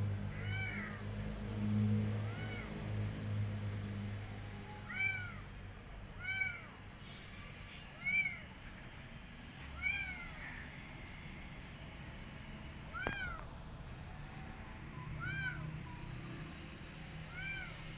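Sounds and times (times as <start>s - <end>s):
kitten meowing: 0.3s - 1.0s, 2.3s - 2.7s, 4.8s - 5.4s, 6.2s - 6.7s, 8.0s - 8.4s, 9.8s - 10.5s, 12.9s - 13.4s, 15.2s - 15.7s, 17.3s - 17.9s.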